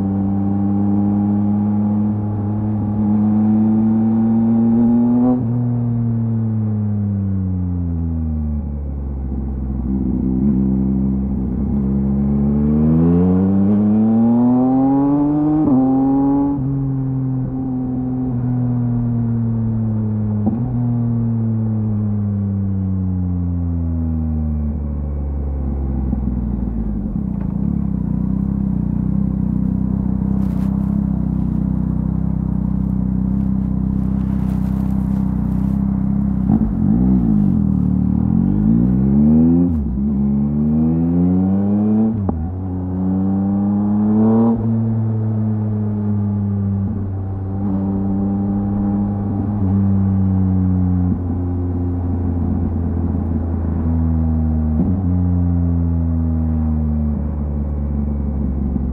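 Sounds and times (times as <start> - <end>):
motorcycle engine revving: 9.8 - 18.4, 25.7 - 55.2.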